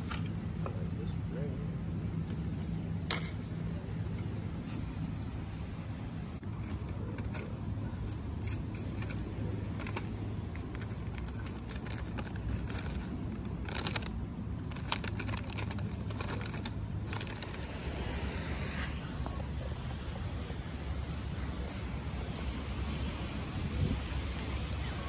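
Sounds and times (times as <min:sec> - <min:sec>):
aluminium foil crinkling: 0:06.4 - 0:17.7.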